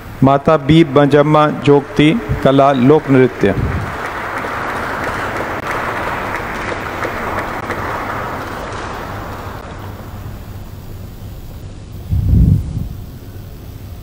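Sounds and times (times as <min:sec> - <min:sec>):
audience applauding: 0:00.6 - 0:11.3.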